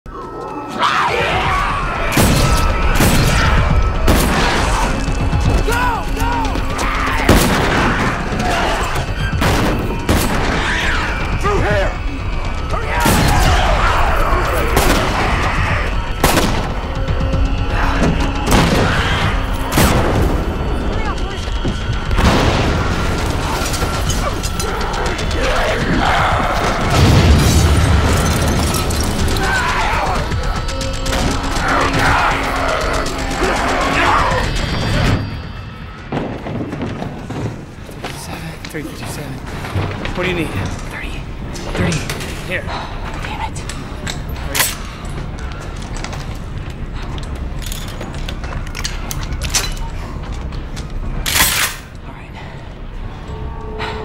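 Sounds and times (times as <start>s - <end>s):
film music score: 0.1s - 54.0s
zombie shrieks and snarls: 31.5s - 35.1s.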